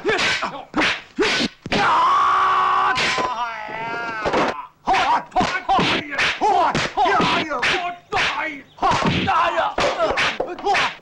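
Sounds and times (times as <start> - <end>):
fighters shouting and grunting: 0.0 - 11.0.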